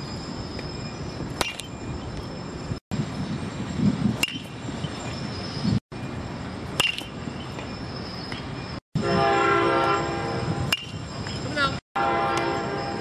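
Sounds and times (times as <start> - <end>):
bat hitting baseball: 1.4 - 1.7, 4.2 - 4.6, 6.7 - 7.2, 10.7 - 11.4
horn-like tone: 9.0 - 10.7, 12.0 - 13.0.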